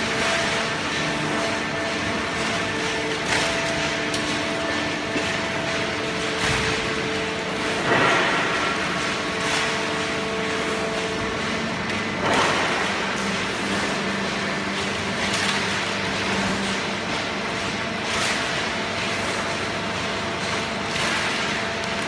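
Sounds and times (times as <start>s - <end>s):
cardboard baler running: 0.0s - 22.0s.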